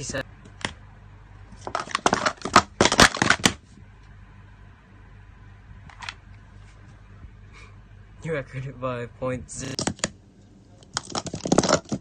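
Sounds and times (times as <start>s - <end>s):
plastic cups clattering: 1.6s - 3.6s, 10.8s - 12.0s.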